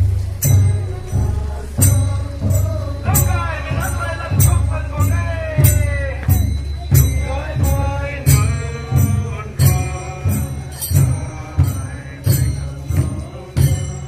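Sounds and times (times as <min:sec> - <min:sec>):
crowd singing a carol: 0:00.0 - 0:14.0
jingling cymbal crash: 0:00.0 - 0:14.0
steady drum beat: 0:00.0 - 0:14.0.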